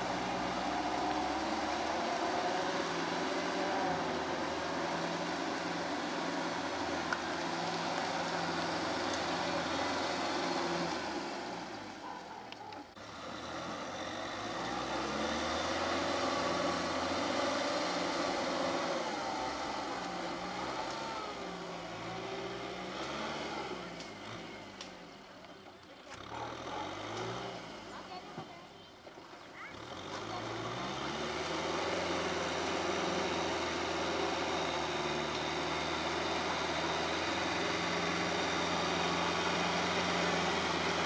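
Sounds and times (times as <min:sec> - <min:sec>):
tractor diesel engine under load: 0:00.0 - 0:41.0.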